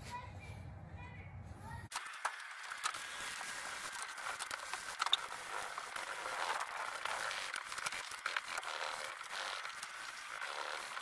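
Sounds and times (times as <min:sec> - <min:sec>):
wet sandpaper rubbing on paint: 0:03.0 - 0:11.0.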